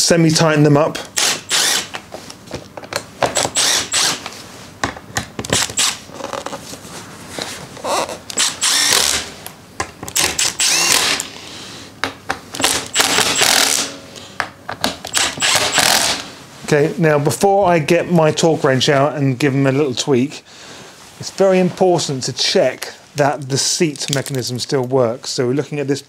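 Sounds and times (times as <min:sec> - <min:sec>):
cordless screwdriver running: 0:01.2 - 0:01.9, 0:03.4 - 0:04.2, 0:05.6 - 0:06.0, 0:08.3 - 0:09.2, 0:10.2 - 0:11.4, 0:12.6 - 0:13.9, 0:15.1 - 0:16.2.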